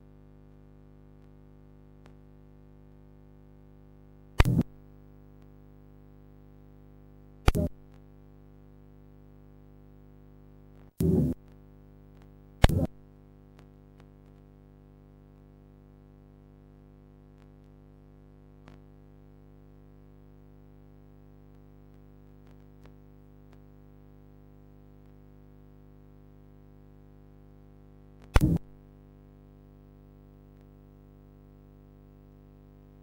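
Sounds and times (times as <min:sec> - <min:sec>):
loud short crackle: 0:04.4 - 0:04.7, 0:12.6 - 0:13.0, 0:28.2 - 0:28.7
steady low hum: 0:04.4 - 0:04.8, 0:07.5 - 0:13.1.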